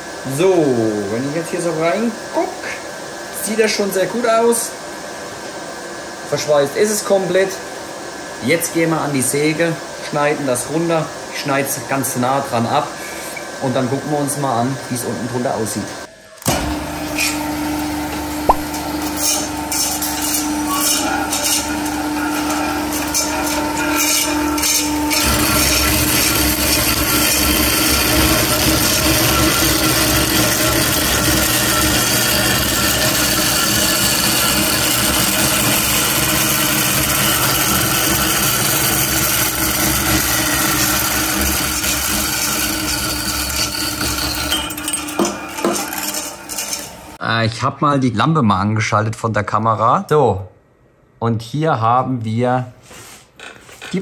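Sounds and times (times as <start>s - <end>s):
band saw cutting metal: 11.9s - 47.2s.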